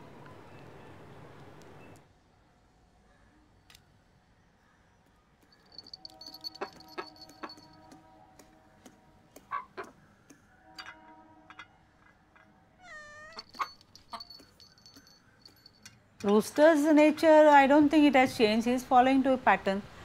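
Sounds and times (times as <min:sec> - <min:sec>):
beak tapping on a steel dish: 0:05.6 - 0:08.0
cat meow: 0:12.8 - 0:13.7.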